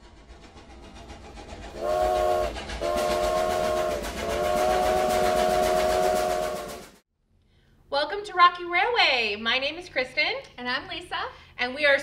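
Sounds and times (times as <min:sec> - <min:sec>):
steam locomotive chugging: 0:00.0 - 0:07.0
steam whistle blasts: 0:01.7 - 0:07.0.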